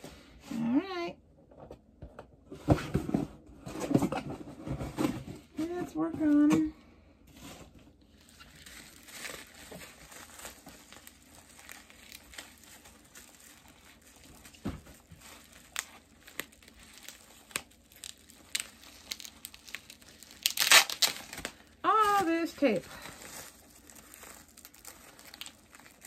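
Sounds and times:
bubble wrap crinkling: 7.3 - 26.0.

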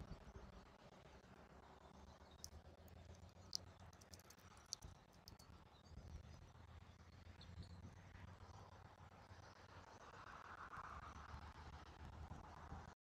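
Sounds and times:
faint sharp clicks: 2.4 - 5.5.

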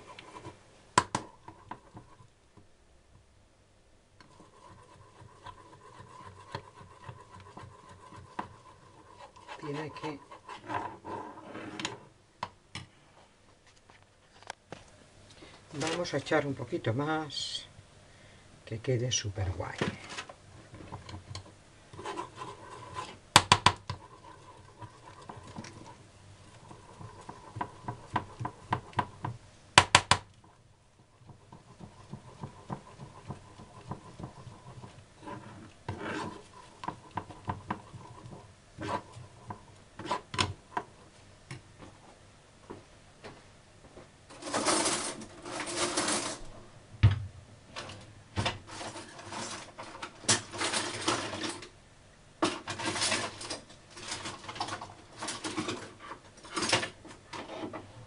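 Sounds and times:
rubbing and handling noise: 0.0 - 2.4, 4.2 - 12.1, 19.5 - 29.6, 30.4 - 42.2, 43.4 - 46.6, 48.6 - 51.7.

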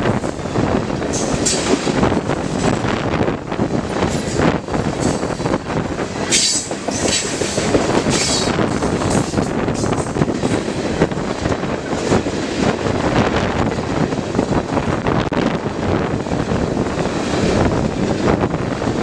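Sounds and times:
wheels clacking over rail joints: 0.0 - 14.6
train wheels rumbling on rail: 0.0 - 19.0.

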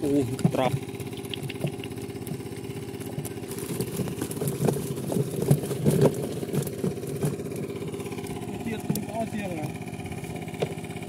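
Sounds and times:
small engine idling: 0.0 - 11.0
fish tipped into wicker basket: 0.3 - 7.6.

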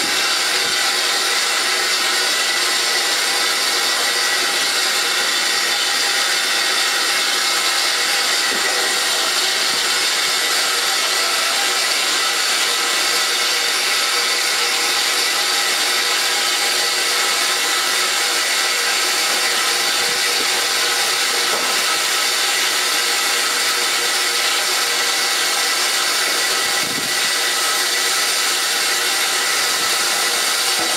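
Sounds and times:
train hissing rush: 0.0 - 22.3.

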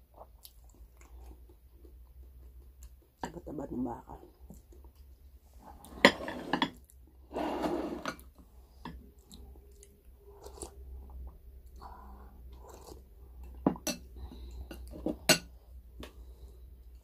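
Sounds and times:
chewing: 0.0 - 3.2, 9.0 - 15.1.

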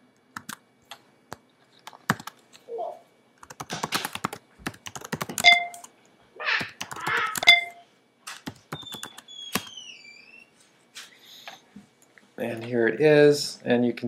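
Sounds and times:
faint falling squeak: 8.8 - 10.6.

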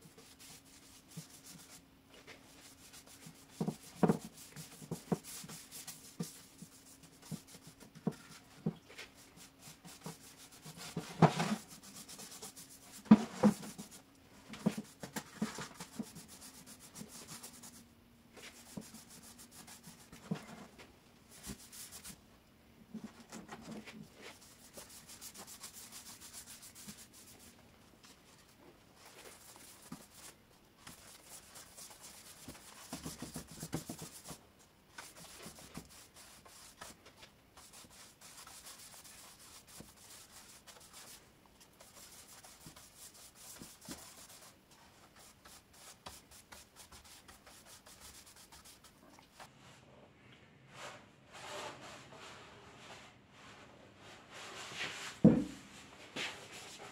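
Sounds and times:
brush strokes on wood: 23.8 - 37.0, 37.6 - 49.5.

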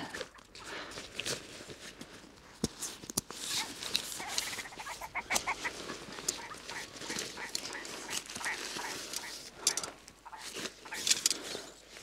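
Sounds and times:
grouse clucking call: 3.6 - 11.1.

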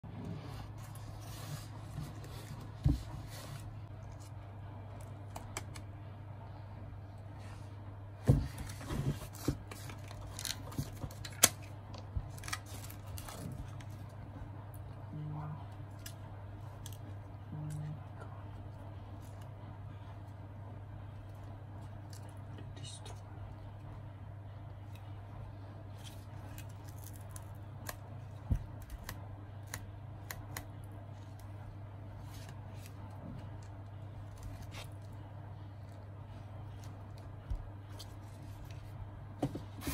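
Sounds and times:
steady low hum: 0.0 - 39.9
paper rustling and crinkling: 8.3 - 14.1.

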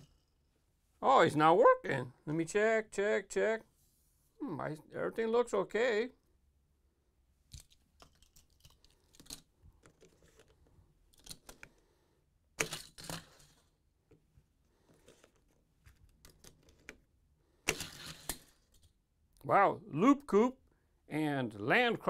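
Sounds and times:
toy car clattering down plastic track: 12.6 - 13.7, 17.7 - 18.8.

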